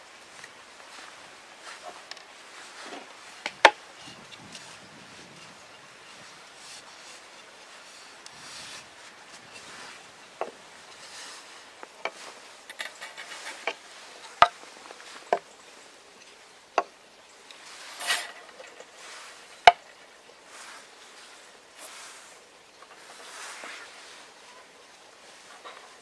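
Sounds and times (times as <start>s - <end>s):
soft rustling: 0.0s - 26.0s
wood scraping: 0.0s - 26.0s.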